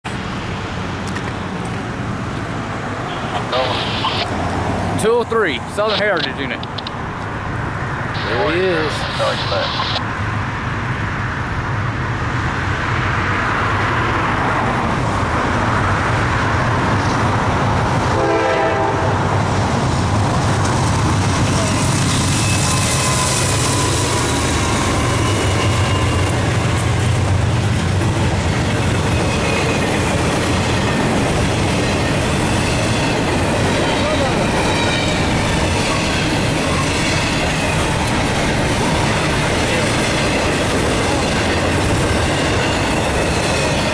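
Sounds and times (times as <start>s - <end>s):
diesel locomotive engines running: 0.1s - 43.9s
train horn: 18.1s - 19.3s.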